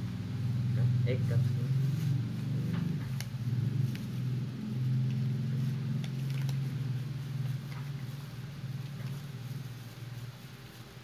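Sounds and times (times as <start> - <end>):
low steady hum: 0.0 - 11.0
plastic sachet rustling: 5.1 - 11.0.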